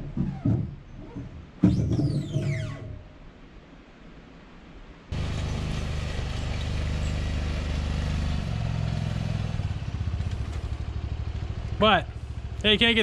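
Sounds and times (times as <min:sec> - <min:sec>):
utv engine running: 0:05.1 - 0:13.0.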